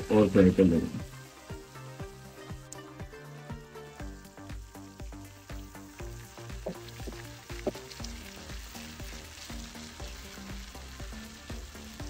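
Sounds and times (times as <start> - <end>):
eggplants sizzling in oil: 0.0 - 12.0
wooden spatula turning food: 5.7 - 11.1.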